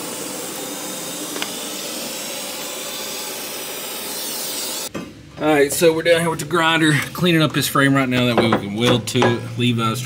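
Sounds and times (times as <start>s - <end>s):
arc welding hiss: 0.0s - 4.9s.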